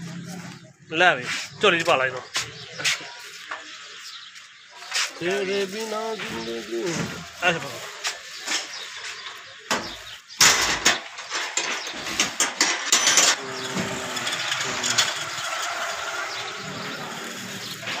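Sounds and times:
goods rustling: 1.2 - 10.2.

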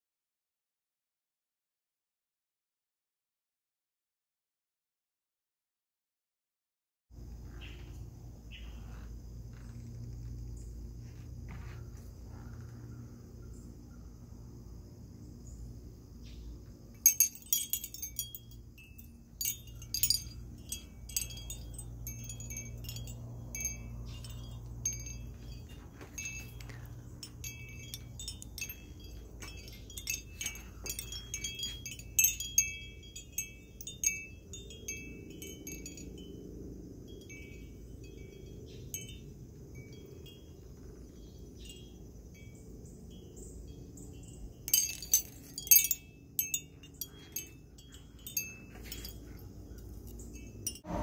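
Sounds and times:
glass wind chime clinking: 16.9 - 51.0.

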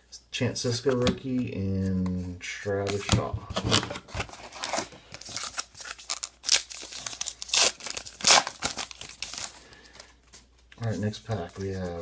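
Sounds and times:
foil wrapper tearing and crinkling: 4.2 - 9.6.

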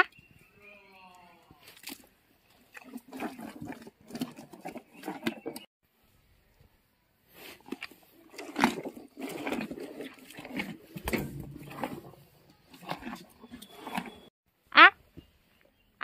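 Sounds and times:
hippopotamus chewing wetly: 1.6 - 5.7, 7.3 - 14.3.

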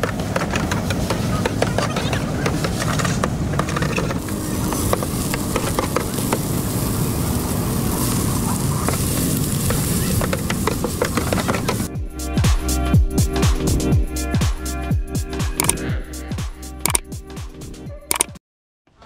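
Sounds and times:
street noise: 0.0 - 18.4
noodles sizzling on a griddle: 3.7 - 12.0.

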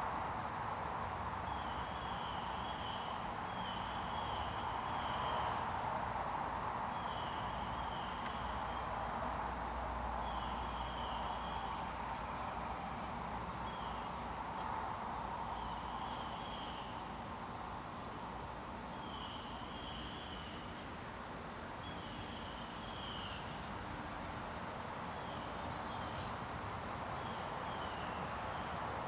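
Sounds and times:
distant traffic: 0.1 - 29.0
small birds chirping: 25.2 - 26.4.

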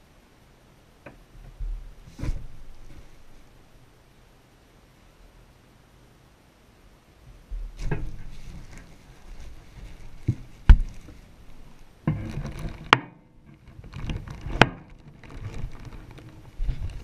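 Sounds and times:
plastic bags rustling and crinkling: 7.7 - 12.9, 13.6 - 17.0.

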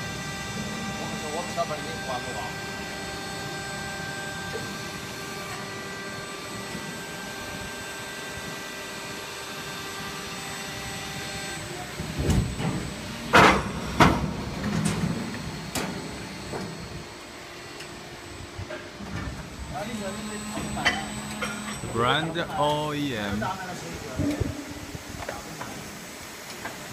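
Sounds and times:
machine hum: 0.0 - 26.4
loud clanks and knocks: 12.2 - 15.2.

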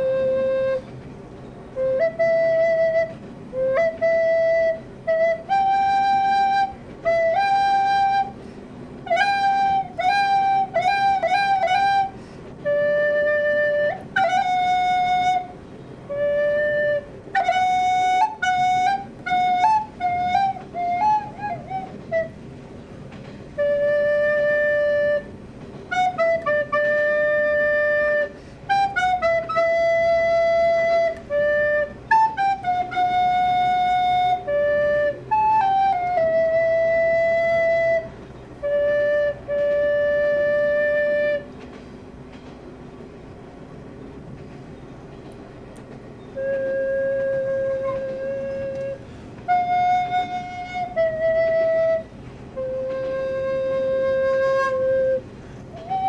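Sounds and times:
recorder playing: 0.0 - 0.9, 1.7 - 8.4, 9.0 - 22.5, 23.6 - 41.6, 46.3 - 56.0.

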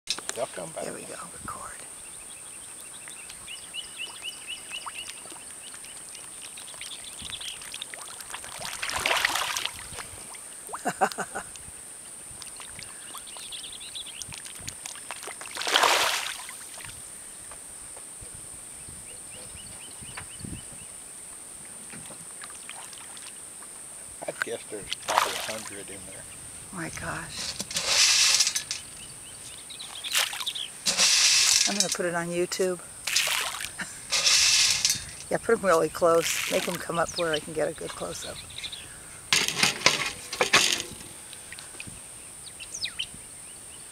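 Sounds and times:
fish splashing in water: 4.0 - 10.8, 14.2 - 16.9, 25.0 - 25.8, 30.1 - 31.9, 33.0 - 35.2
faint chirping: 38.0 - 39.3.

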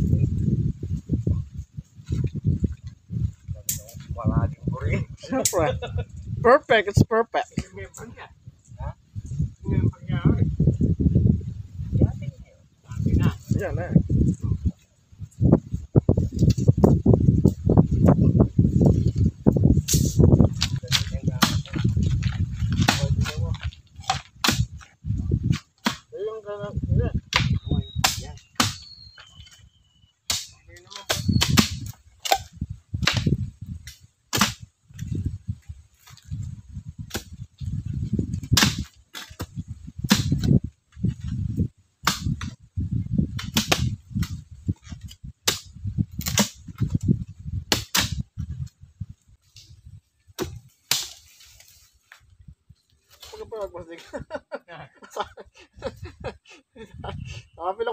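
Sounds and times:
high chirps: 27.4 - 30.3.

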